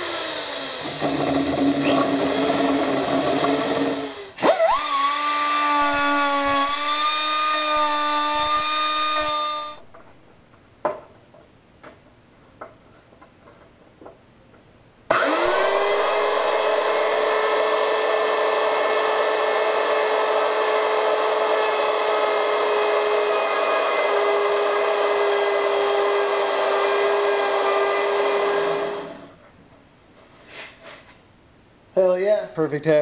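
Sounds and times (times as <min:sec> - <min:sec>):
router motor whining: 0:00.0 - 0:09.8, 0:15.1 - 0:29.3
electric drill boring through board: 0:00.0 - 0:09.9, 0:15.1 - 0:29.3.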